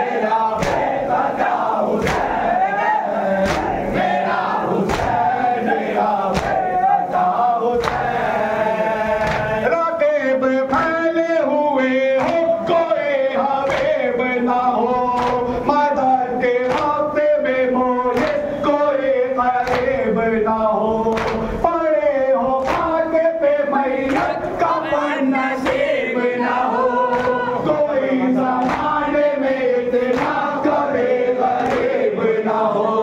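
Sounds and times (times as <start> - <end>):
lead reciter chanting: 0.0 - 33.0
men chanting in unison: 0.0 - 33.0
hands slapping chests: 0.6 - 2.6, 3.4 - 4.1, 4.8 - 5.4, 6.3 - 6.7, 7.8 - 8.2, 9.2 - 9.6, 12.2 - 12.7, 13.6 - 14.0, 15.2 - 15.6, 16.6 - 17.0, 18.1 - 18.5, 19.6 - 20.0, 21.1 - 21.6, 22.6 - 23.0, 24.0 - 24.6, 25.6 - 25.9, 27.1 - 27.4, 28.6 - 29.0, 30.0 - 30.8, 31.6 - 32.0.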